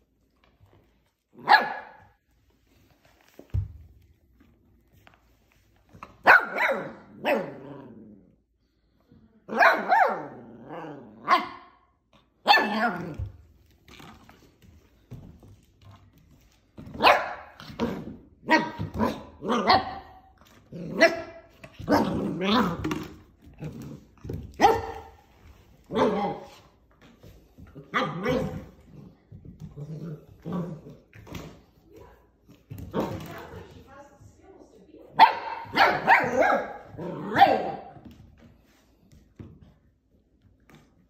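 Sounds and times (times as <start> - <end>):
puppy barking: 1.4 - 2.1, 6.2 - 7.6, 9.5 - 10.4, 11.2 - 11.8, 12.4 - 13.0, 17.0 - 17.6, 24.6 - 25.2, 35.2 - 38.0.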